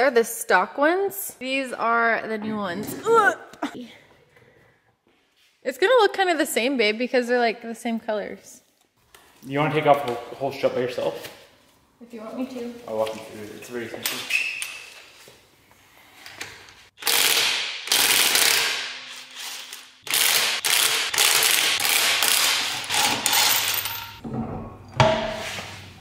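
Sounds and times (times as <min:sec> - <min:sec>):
impact wrench hammering lug nuts: 0:20.1 - 0:24.1.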